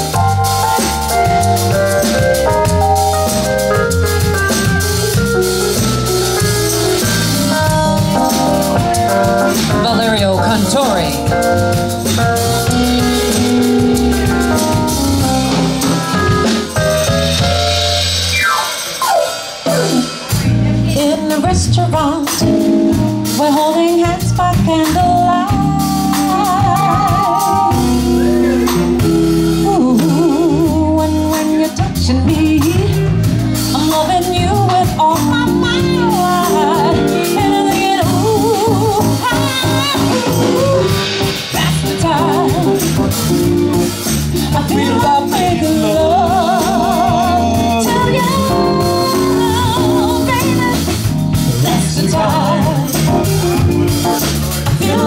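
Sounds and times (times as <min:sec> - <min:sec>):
jazz band playing: 0:00.0 - 0:55.0
woman singing: 0:09.6 - 0:11.4, 0:20.4 - 0:27.8, 0:29.6 - 0:43.2, 0:44.4 - 0:53.7, 0:54.7 - 0:55.0.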